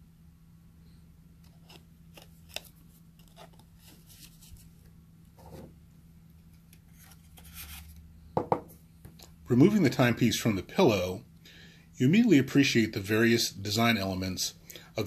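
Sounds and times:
faint steady hum: 0.0 - 15.0
gloved hands rustling paper: 1.6 - 4.9.

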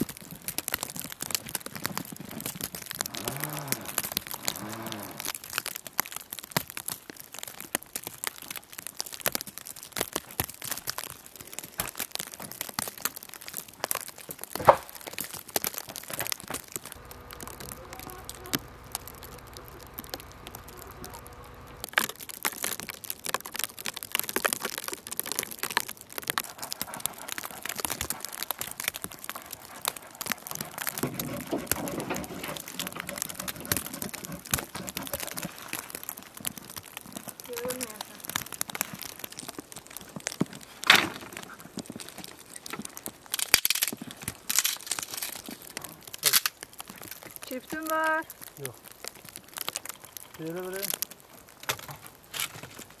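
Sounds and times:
faint steady hum: 17.0 - 21.9
blade scraping snow: 31.0 - 35.7.

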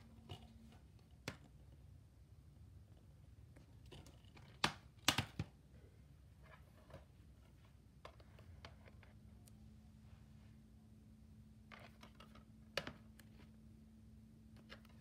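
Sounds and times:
plastic cases clicking and snapping: 4.2 - 5.6.

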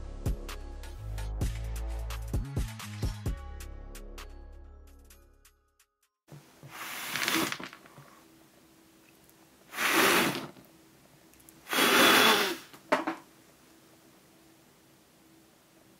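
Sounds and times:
person blowing out candles: 6.7 - 7.7, 9.7 - 10.6, 11.6 - 12.8.

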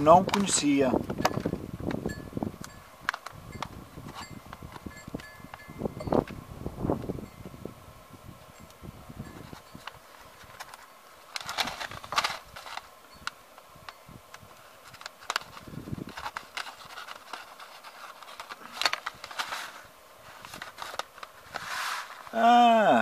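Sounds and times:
paper envelopes crinkling: 0.0 - 0.9, 9.9 - 13.0, 14.5 - 22.4
light scrapes and ticks: 13.9 - 22.3.

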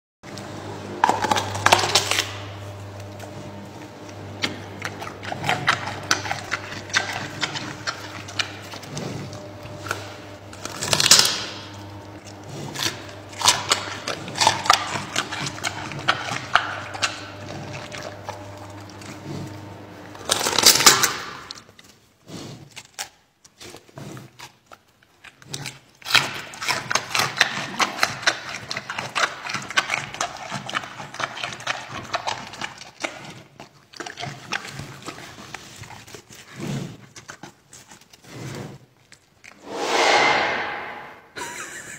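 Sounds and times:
steady low hum: 0.3 - 21.6, 39.5 - 41.9
panda crunching food: 0.9 - 39.6.

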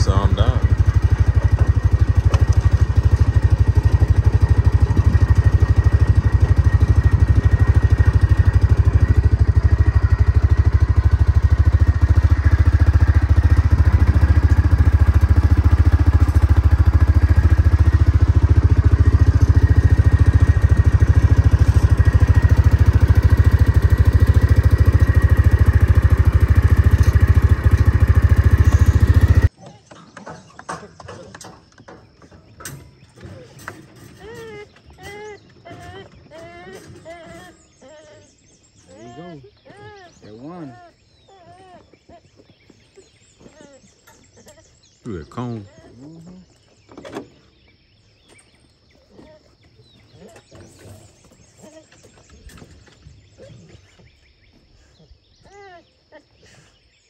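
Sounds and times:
off-road vehicle engine rumbling: 0.0 - 57.0.

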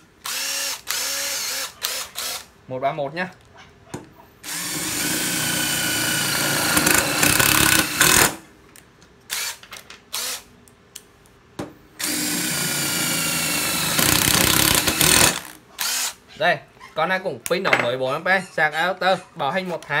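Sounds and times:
cordless drill motor whine: 0.2 - 2.5, 4.4 - 8.4, 12.0 - 16.1
drill clicks: 0.2 - 2.5, 4.4 - 8.4, 12.0 - 16.1
drill trigger blips: 12.0 - 16.1.

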